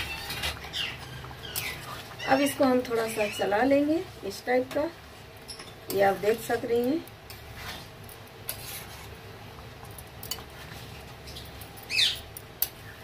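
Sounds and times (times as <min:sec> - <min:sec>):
spoon stirring in metal pan: 0:05.4 - 0:11.7.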